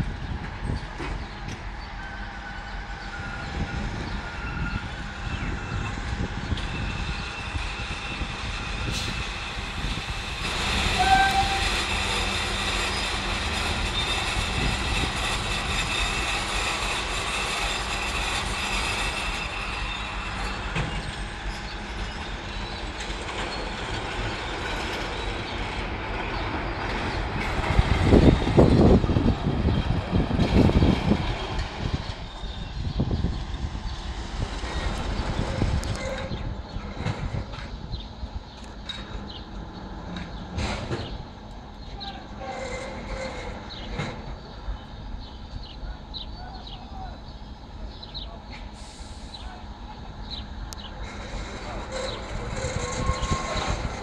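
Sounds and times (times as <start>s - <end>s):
freight train rumble: 0.0s - 54.0s
heavy clanking of wagons: 50.3s - 54.0s.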